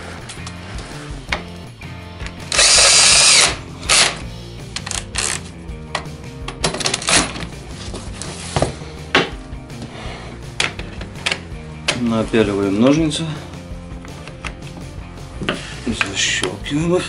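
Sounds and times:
cordless drill whining: 2.4s - 4.2s.

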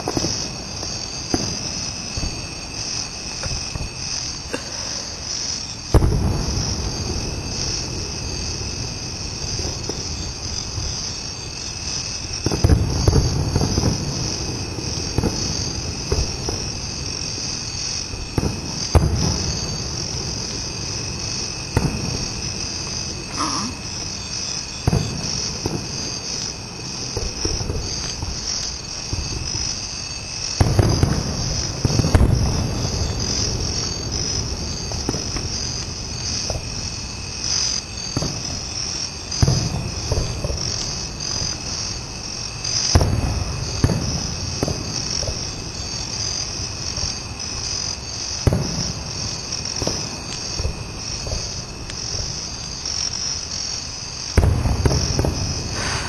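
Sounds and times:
crickets chirping: 0.0s - 56.0s
distant fireworks booming: 0.0s - 56.0s.

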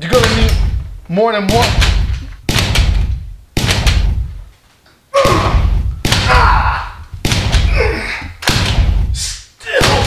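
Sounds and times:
echoing gunshots: 1.5s - 4.4s, 5.2s - 7.8s, 8.4s - 9.2s.

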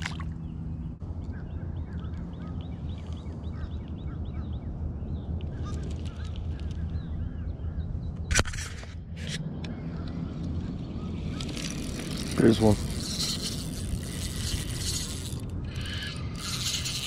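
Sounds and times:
birds chirping: 0.0s - 8.3s, 9.6s - 17.0s
steady low hum: 0.0s - 17.0s
sharp clatter: 11.3s - 17.0s.

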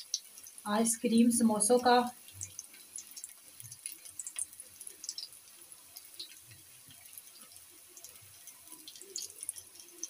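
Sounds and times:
oil sizzling with pops: 0.0s - 10.0s.

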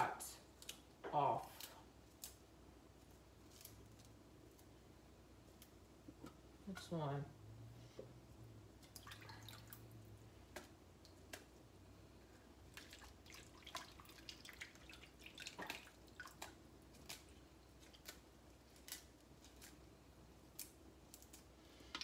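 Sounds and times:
leaves snapping: 0.6s - 2.4s, 3.4s - 4.7s, 15.5s - 19.8s, 20.4s - 22.0s
water dripping: 8.8s - 11.6s, 12.6s - 18.2s.

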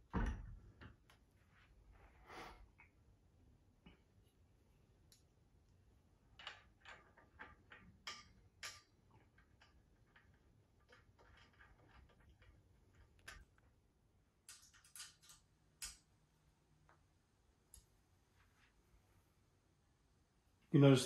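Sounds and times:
small clicks and ticks: 14.4s - 16.1s.

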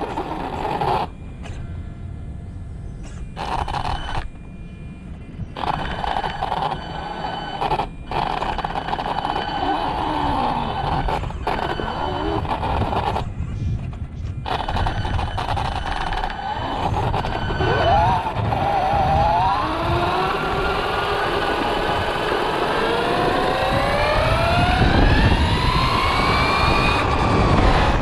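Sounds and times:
tyres rumbling on rough paving: 0.0s - 1.1s
rc car motor whining: 0.0s - 1.2s, 3.1s - 4.4s, 5.4s - 13.6s, 14.3s - 28.0s.

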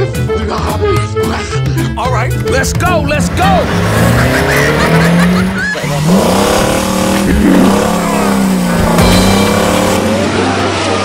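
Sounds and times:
racing car engine revving: 3.0s - 11.0s.

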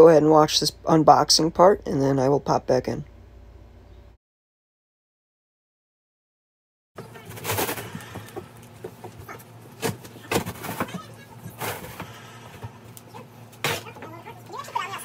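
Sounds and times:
cardboard flaps rustling and scraping: 7.0s - 12.8s.

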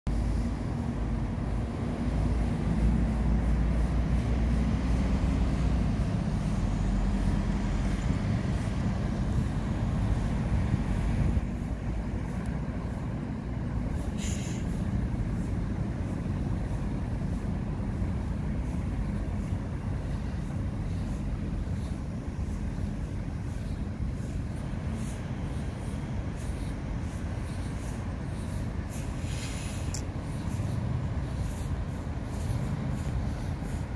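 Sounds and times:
road vehicles rumbling: 0.0s - 33.9s
short hiss: 13.8s - 15.4s, 26.7s - 30.9s.

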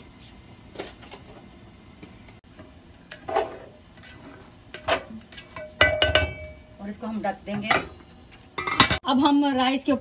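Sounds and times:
spoon scraping metal pot: 3.1s - 6.3s.

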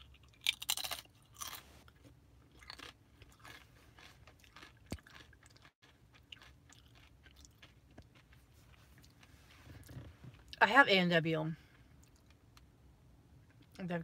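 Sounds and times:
chewing food: 0.0s - 10.6s.

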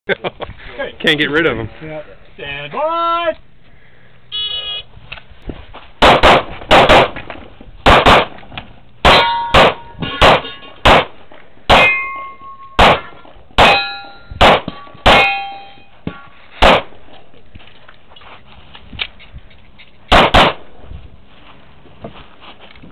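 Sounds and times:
handgun shots: 6.0s - 7.2s, 7.8s - 8.4s, 9.0s - 11.1s, 12.8s - 13.8s, 14.4s - 15.4s, 16.6s - 16.9s, 20.1s - 20.6s
bullets ringing steel targets: 9.0s - 11.1s, 11.7s - 16.8s.

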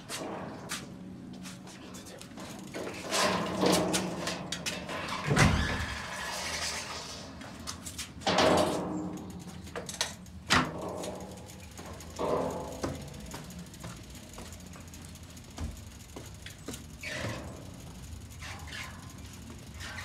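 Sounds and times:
bicycle knocks rattles and clicks: 0.0s - 20.0s
bicycle thumps: 7.8s - 20.0s.

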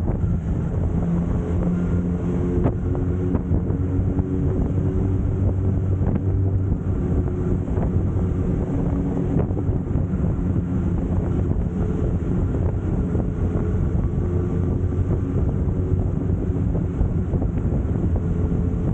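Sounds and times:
wind buffeting on microphone: 0.0s - 18.9s.

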